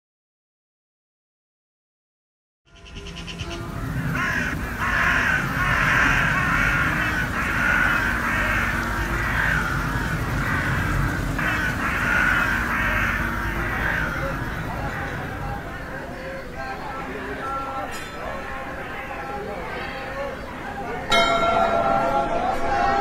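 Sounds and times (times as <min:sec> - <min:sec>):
chorus of bird calls: 0:02.7 - 0:23.0
low background rumble: 0:02.9 - 0:16.2.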